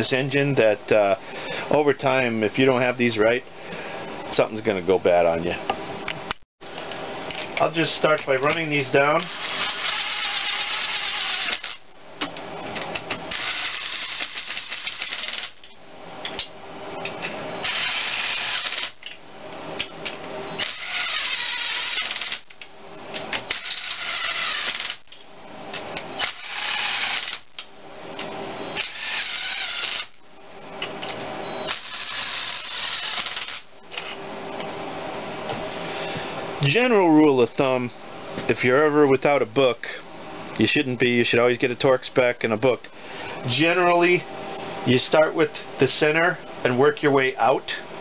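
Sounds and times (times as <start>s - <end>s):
cordless driver motor whine: 5.1s - 37.7s.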